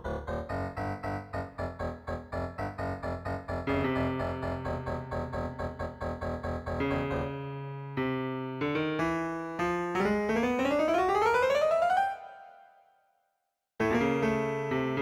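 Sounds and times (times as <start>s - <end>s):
piano chords and notes: 0.0s - 13.0s, 13.8s - 15.0s.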